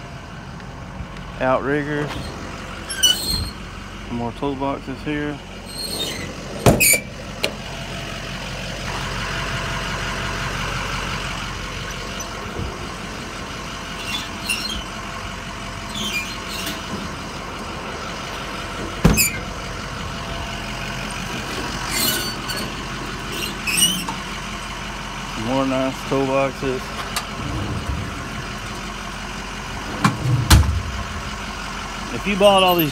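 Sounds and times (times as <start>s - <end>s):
diesel engine idling: 0.0s - 32.9s
metallic squeaks and rattles: 2.0s - 3.6s, 5.6s - 7.2s, 13.9s - 15.0s, 15.8s - 17.2s, 19.0s - 19.5s, 21.5s - 24.2s.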